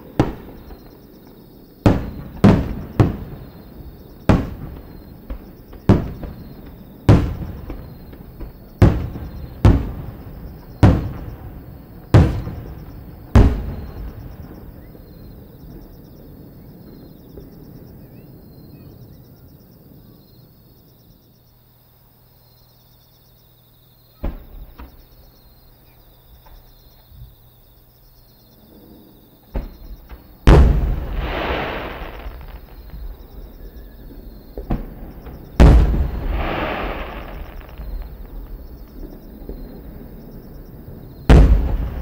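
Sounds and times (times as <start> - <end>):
rumbling echoing booms: 0.0 - 18.0, 29.5 - 42.0
firework shells bursting: 29.6 - 33.8, 34.6 - 39.7, 41.3 - 42.0.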